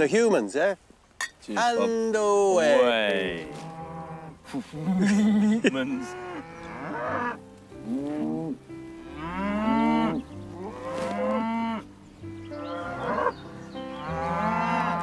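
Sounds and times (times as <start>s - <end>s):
soft background music: 1.5s - 15.0s
cattle mooing: 3.3s - 11.9s, 12.6s - 15.0s.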